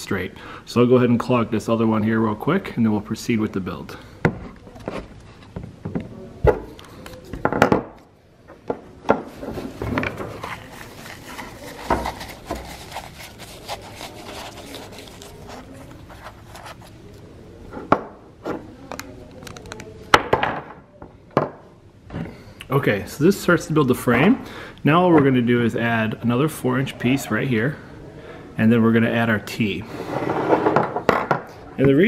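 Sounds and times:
pipes rubbing and scraping: 0:09.2 - 0:17.2, 0:29.9 - 0:31.0.

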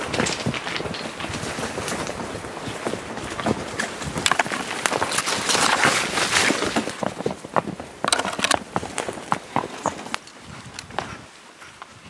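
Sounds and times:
branches scraping clothing: 0:03.2 - 0:07.0.

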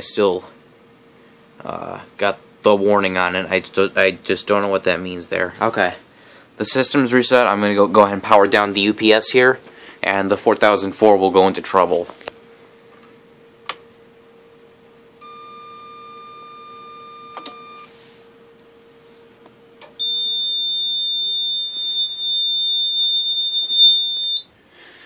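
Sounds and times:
low electrical hum: 0:00.0 - 0:25.0
high-pitched alarm buzzer: 0:15.2 - 0:17.9, 0:20.0 - 0:24.5
ups beeping: 0:15.2 - 0:18.0, 0:20.0 - 0:24.5
button clicks: 0:17.3 - 0:17.8.

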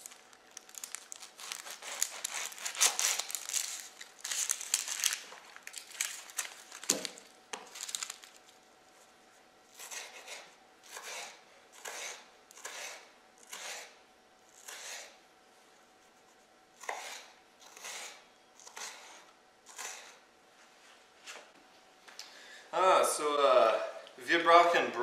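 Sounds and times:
knife slicing onion on board: 0:09.7 - 0:15.2, 0:16.8 - 0:20.2.

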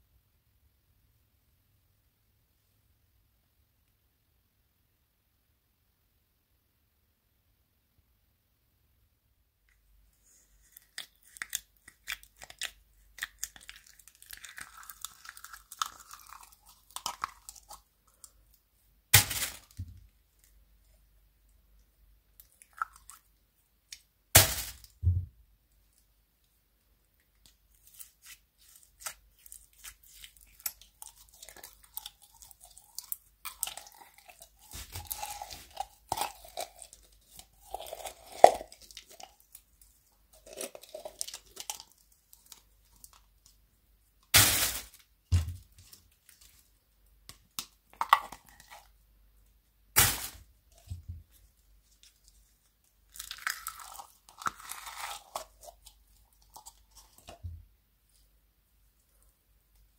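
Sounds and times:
slime crackling and squelching: 0:10.2 - 0:21.0, 0:27.3 - 0:43.6, 0:47.4 - 0:48.9, 0:50.0 - 0:57.4.

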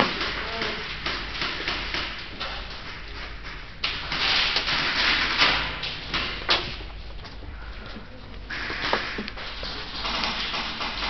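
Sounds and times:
airsoft gunfire: 0:00.0 - 0:06.4, 0:09.8 - 0:11.0.

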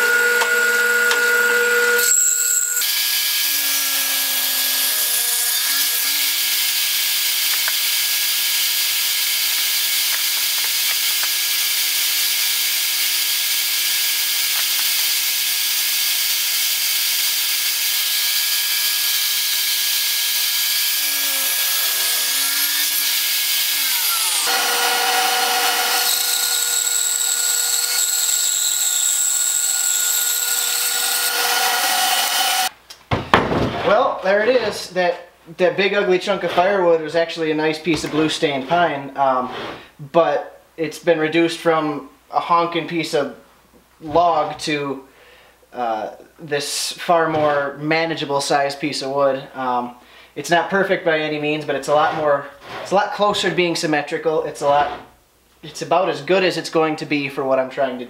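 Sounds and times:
bandsaw cutting wood: 0:00.0 - 0:32.7
saw whine: 0:00.0 - 0:32.7
table saw cutting wood: 0:00.0 - 0:32.8.

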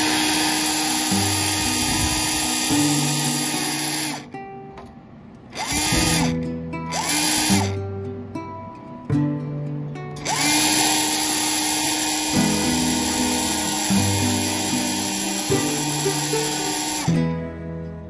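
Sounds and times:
power tool motor whirring: 0:00.0 - 0:04.3, 0:05.5 - 0:07.8, 0:10.2 - 0:17.2
background music with sustained notes: 0:05.6 - 0:18.0.

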